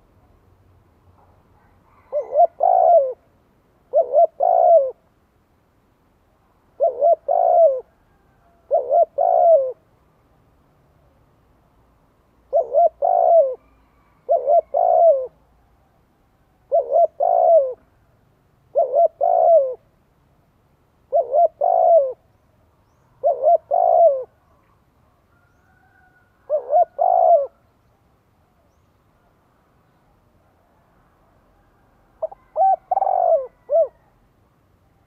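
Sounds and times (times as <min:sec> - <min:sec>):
dove cooing: 0:01.6 - 0:03.3, 0:03.9 - 0:05.1, 0:06.7 - 0:09.9, 0:12.5 - 0:15.5, 0:16.6 - 0:18.0, 0:18.7 - 0:19.9, 0:21.1 - 0:22.3, 0:22.9 - 0:24.7, 0:25.4 - 0:27.7, 0:32.1 - 0:34.2.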